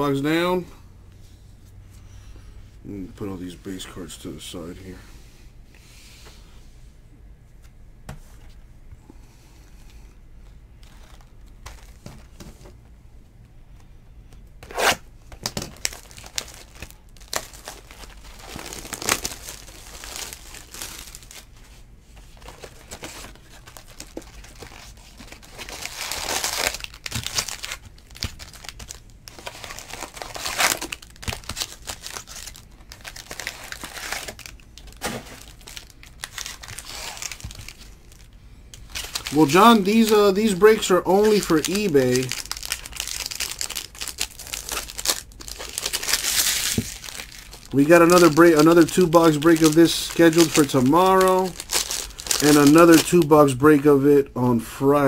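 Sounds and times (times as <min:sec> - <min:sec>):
packaging tearing and rustling: 0:14.6 - 0:21.6, 0:22.2 - 0:53.5.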